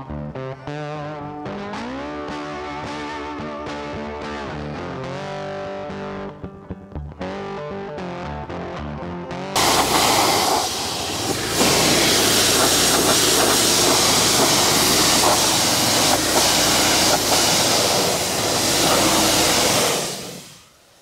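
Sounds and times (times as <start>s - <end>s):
pressure washer engine running: 9.6s - 20.5s
high-pressure water spray hissing: 9.6s - 21.0s.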